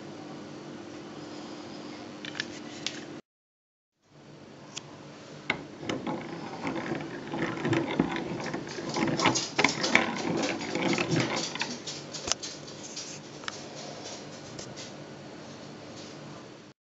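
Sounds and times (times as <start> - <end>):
hand crank gears whirring and clicking: 5.8 - 12.4.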